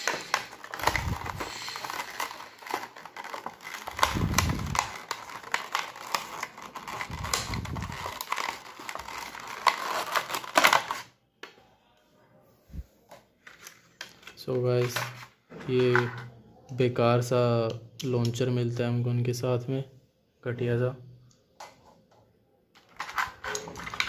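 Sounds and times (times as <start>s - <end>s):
plastic packaging crinkling: 0.0s - 11.1s, 22.8s - 24.0s.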